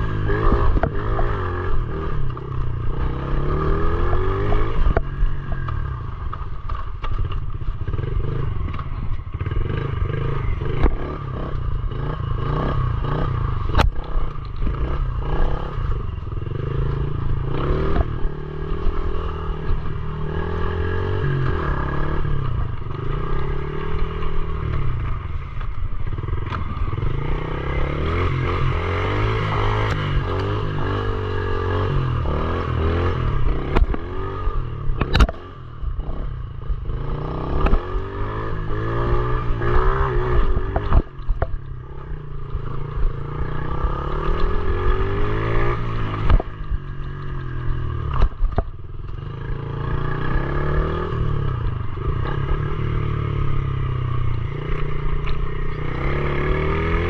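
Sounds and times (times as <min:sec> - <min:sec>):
small motorbike engine revving: 0:00.0 - 0:06.4, 0:07.2 - 0:57.0
bike knocks and rattles: 0:04.0 - 0:11.5, 0:44.1 - 0:49.4.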